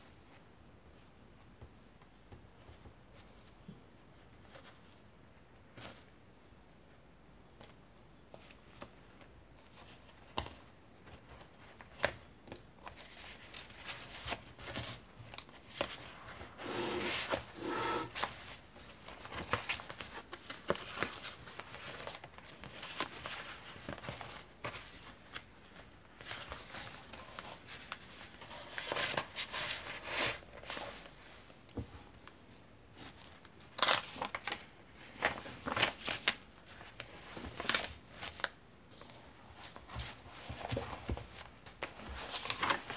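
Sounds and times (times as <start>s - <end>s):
paper rustling and crinkling: 8.3s - 42.9s
pages flapping: 41.9s - 42.9s.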